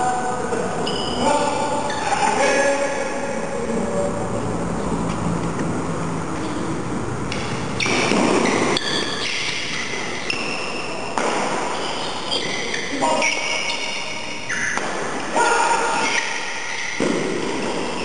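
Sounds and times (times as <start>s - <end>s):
racket hitting shuttlecock: 7.3s - 18.0s
shoes squeaking on floor: 7.7s - 14.9s.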